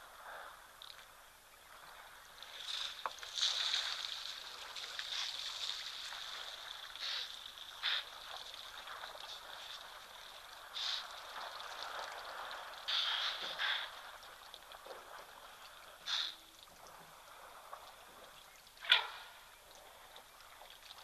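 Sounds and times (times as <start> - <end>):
steady high-pitched hiss: 0.0 - 14.4.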